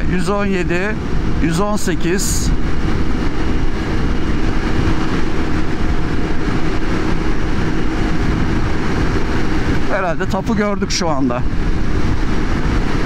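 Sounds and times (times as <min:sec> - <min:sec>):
scooter engine drone: 0:00.0 - 0:13.0
wind noise: 0:00.0 - 0:13.0.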